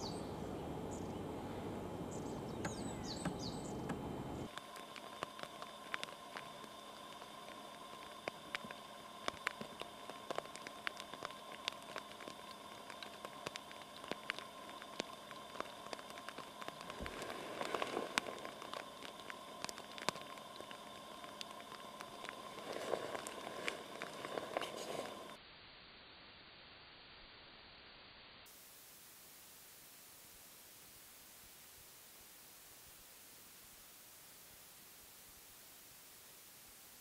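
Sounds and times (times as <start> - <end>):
woodpecker pecking at wood: 2.5 - 4.0
scraping and rustling: 16.7 - 18.9, 22.3 - 25.4.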